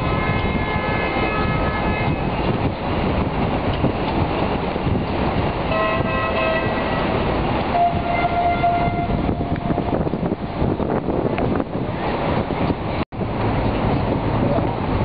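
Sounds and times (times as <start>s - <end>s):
harbour rumble: 0.0s - 15.0s.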